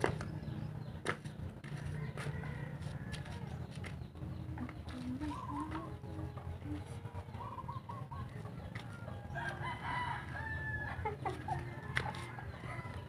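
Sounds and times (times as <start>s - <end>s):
rooster crowing: 1.8s - 3.6s, 9.1s - 13.0s.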